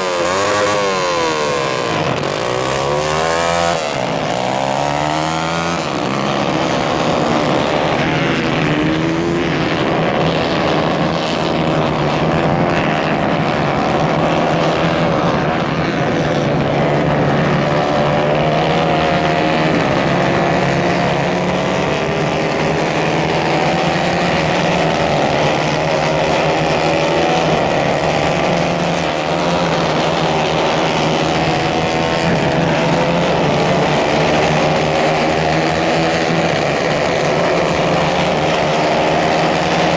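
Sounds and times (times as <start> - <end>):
go-kart engines racing: 0.0 - 39.9.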